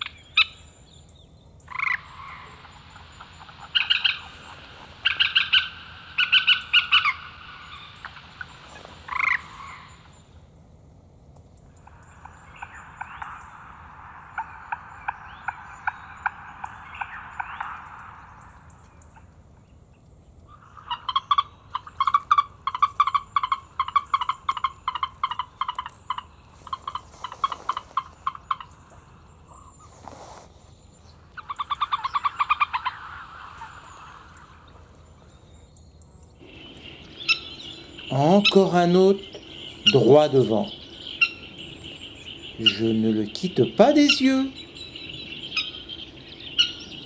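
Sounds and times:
animal calling in pulsed notes: 0:11.7 - 0:19.4, 0:36.4 - 0:47.0.

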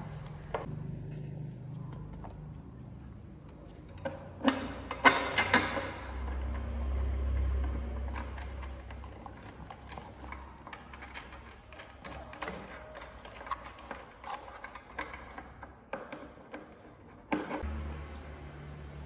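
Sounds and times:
hard plastic parts knocking and clicking: 0:07.7 - 0:17.6.

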